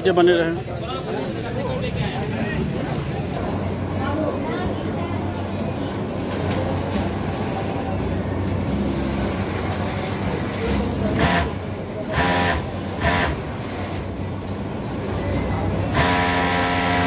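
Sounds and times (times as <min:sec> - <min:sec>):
factory machinery hum: 0:00.0 - 0:17.0
industrial sewing machine running: 0:08.7 - 0:14.2, 0:15.8 - 0:17.0.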